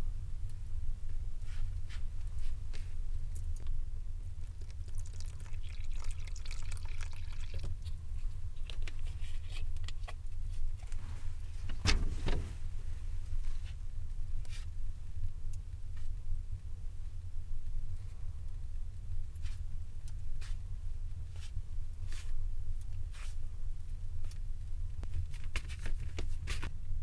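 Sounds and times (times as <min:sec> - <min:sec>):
low steady hum: 0:00.0 - 0:27.0
water trickling into flour: 0:04.4 - 0:08.8.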